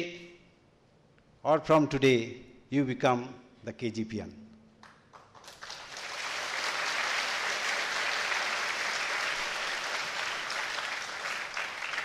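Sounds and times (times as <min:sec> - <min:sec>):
audience applauding: 0:04.8 - 0:12.0.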